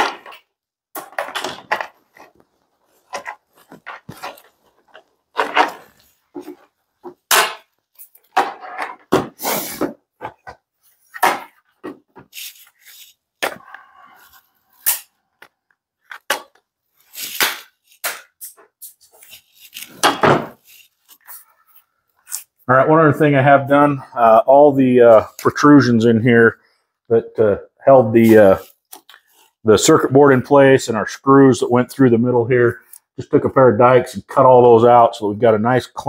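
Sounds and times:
plastic parts clicking and knocking: 0.0s - 9.4s, 14.9s - 16.7s.

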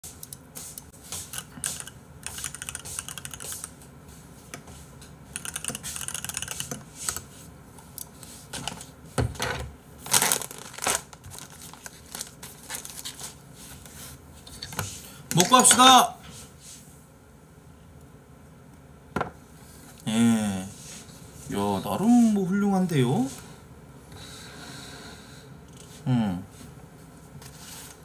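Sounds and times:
keyboard typing clicks: 1.3s - 3.7s, 5.4s - 7.2s.

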